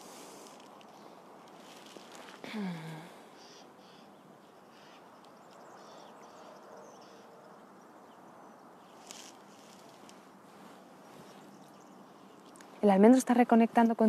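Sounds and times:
small wildlife chirping: 3.3s - 7.3s.

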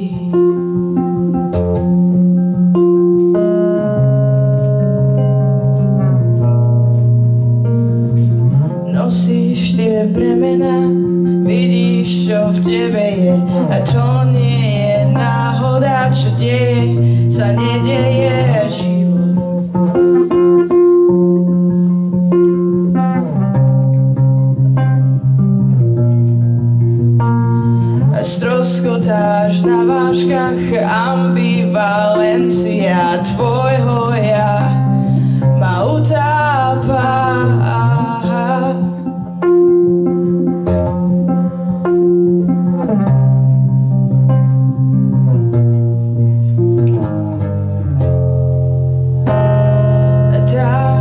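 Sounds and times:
woman singing: 0.0s - 1.5s, 8.8s - 20.8s, 27.6s - 39.5s, 49.3s - 51.0s
electric guitar chords: 0.0s - 51.0s.

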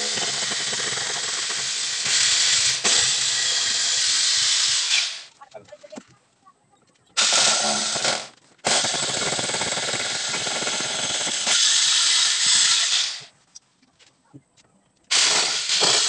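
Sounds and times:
electric drill hammering rattle: 0.0s - 5.3s, 7.2s - 13.3s, 15.1s - 16.0s.

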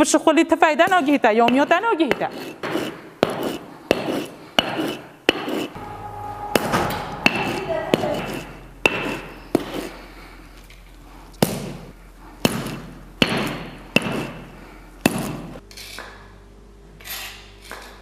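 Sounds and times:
pounding on grinding stone: 0.9s - 10.0s
scraping on grinding stone: 2.1s - 6.0s.

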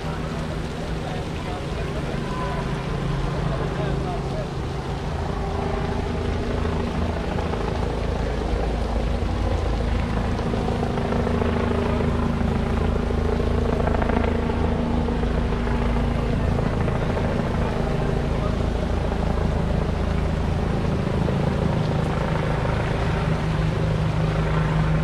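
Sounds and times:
engine drone: 0.0s - 25.0s.

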